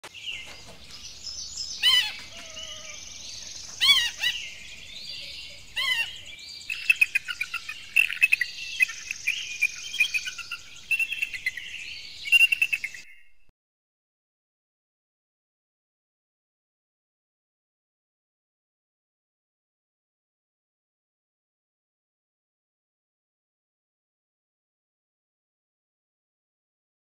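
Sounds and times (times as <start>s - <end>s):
eagle calling: 1.8s - 13.0s.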